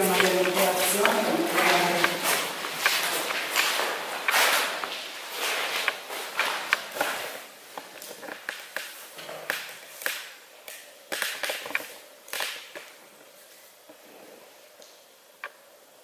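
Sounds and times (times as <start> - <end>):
footsteps on gritty floor: 0.0 - 9.4.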